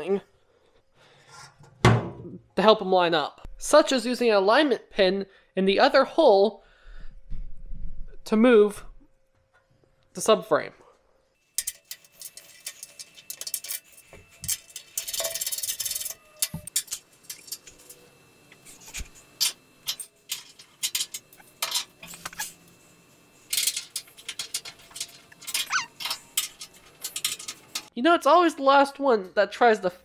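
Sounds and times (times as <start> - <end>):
metal bolts clinking and rattling: 11.6 - 18.1, 19.4 - 22.6, 23.5 - 27.9.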